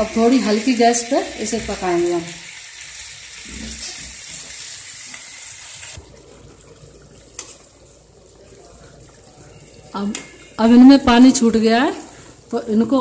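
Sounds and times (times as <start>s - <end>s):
vegetables sizzling in a pan: 0.0s - 6.2s, 7.2s - 13.0s
food bubbling in water: 5.9s - 13.0s.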